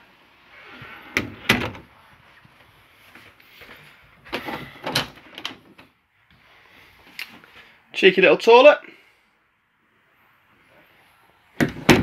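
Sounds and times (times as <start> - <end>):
knocks and rattles of door: 1.2 - 1.9, 11.6 - 12.0.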